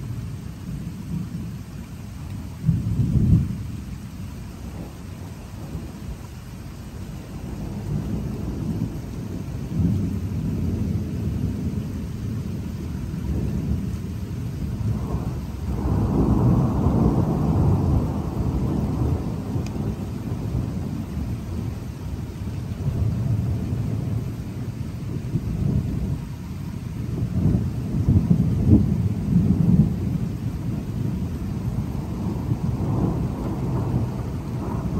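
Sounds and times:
thunder rumbling: 0.0s - 34.9s
loud thunder peal: 14.7s - 21.8s, 27.2s - 34.9s.

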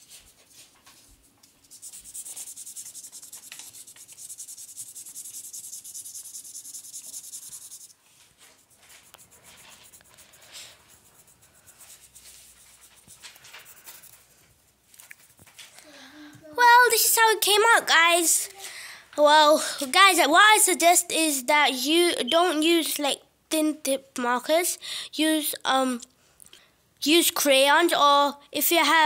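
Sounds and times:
felt marker scribbling on paper: 0.0s - 14.3s.

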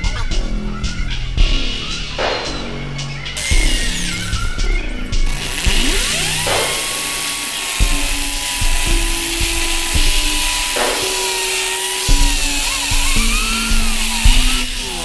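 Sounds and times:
background music with held notes: 0.0s - 15.0s
power drill whining: 3.4s - 15.0s.

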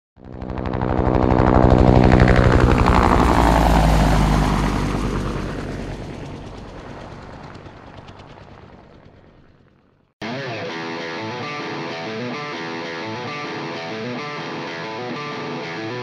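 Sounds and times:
helicopter passing by: 0.2s - 16.0s.

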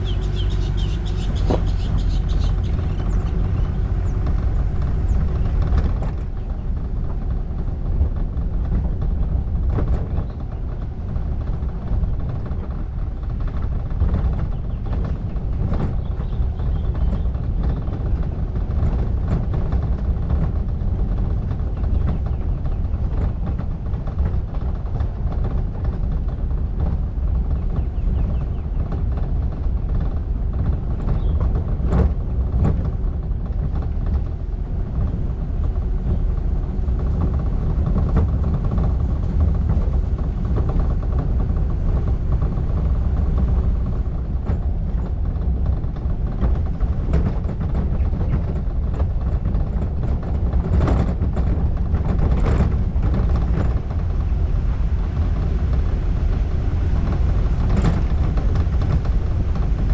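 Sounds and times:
car rumbling on dirt track: 0.0s - 59.9s
sharp knocks from bumps: 0.1s - 7.4s.

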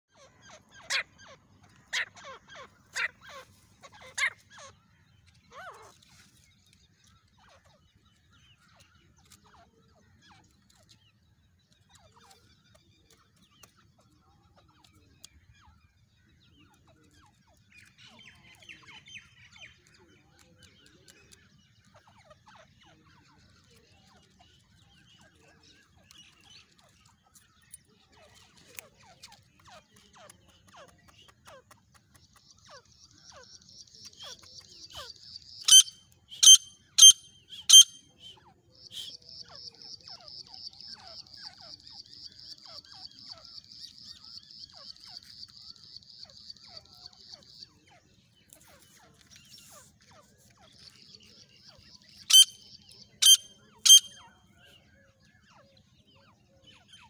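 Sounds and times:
faint bird chirps: 0.0s - 57.0s
francolin calling loudly: 35.6s - 38.3s, 52.3s - 54.3s.

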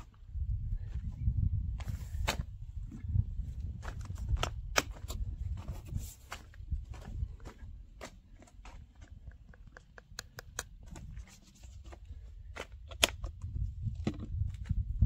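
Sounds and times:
footsteps on pavement: 1.8s - 10.0s.

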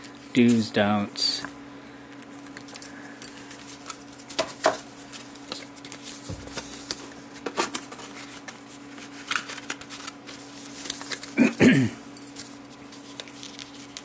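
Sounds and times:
paper rustling and tapping: 3.8s - 8.6s.

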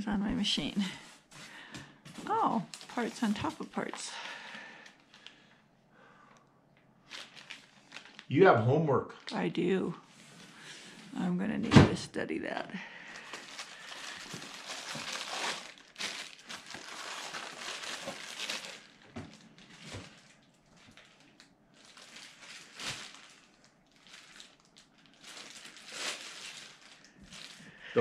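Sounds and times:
packing materials rustling: 1.1s - 5.6s, 7.0s - 8.3s, 13.0s - 28.0s.

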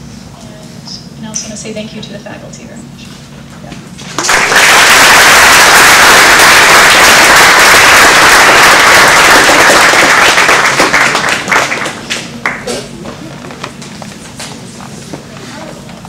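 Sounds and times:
audience applauding: 4.2s - 12.7s.

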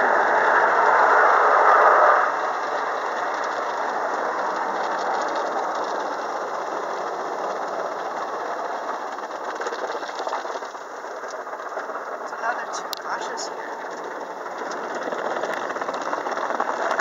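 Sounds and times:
car wash water rushing: 0.0s - 11.2s.

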